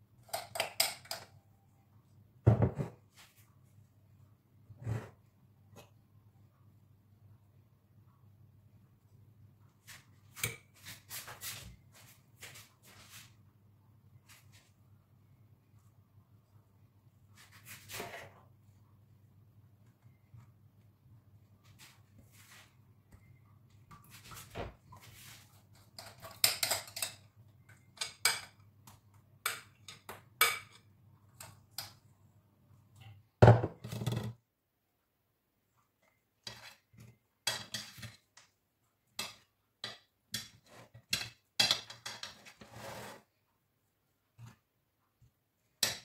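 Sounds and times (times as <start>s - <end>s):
utensil scraping plate and bowl: 42.2s - 43.3s.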